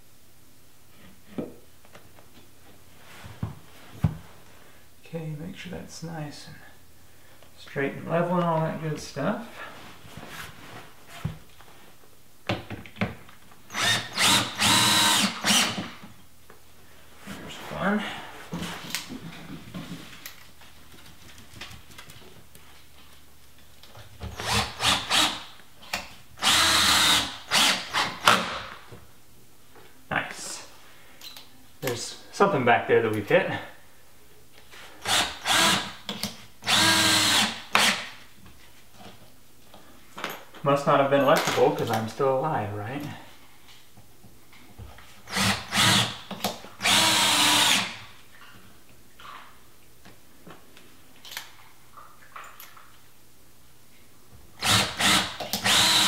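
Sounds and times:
cordless drill motor whining: 0:13.7 - 0:15.9, 0:26.4 - 0:28.2, 0:36.7 - 0:37.9, 0:46.8 - 0:48.0, 0:54.6 - 0:56.0.

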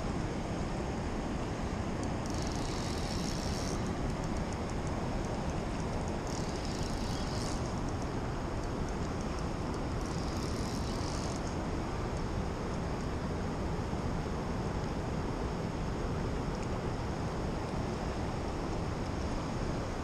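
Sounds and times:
river water: 0:00.0 - 0:20.0
wind: 0:00.0 - 0:20.0
fishing reel whirring: 0:02.2 - 0:04.8, 0:05.4 - 0:08.0, 0:09.8 - 0:11.5.

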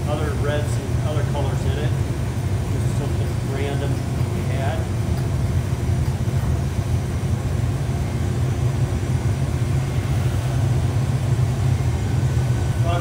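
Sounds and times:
furnace roaring: 0:00.0 - 0:13.0.

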